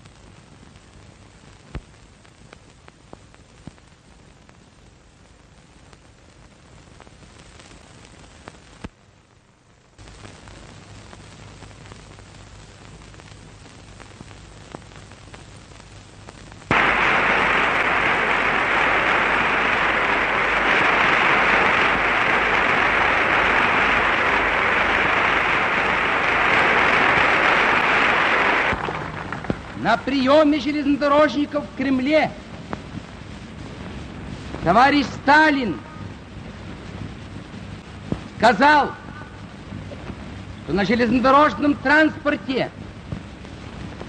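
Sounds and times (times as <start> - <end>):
film soundtrack hiss: 0.0 - 44.0
crowd applauding: 16.7 - 30.2.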